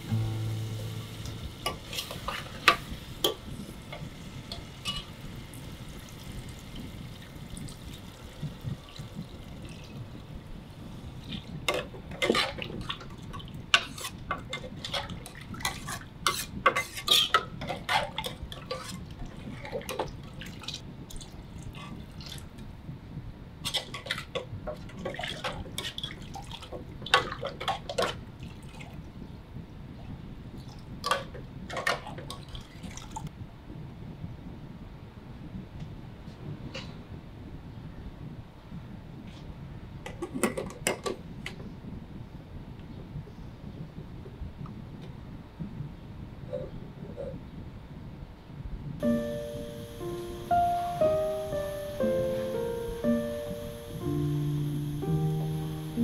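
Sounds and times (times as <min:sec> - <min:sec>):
spoon scraping metal pot: 0:15.7 - 0:19.0.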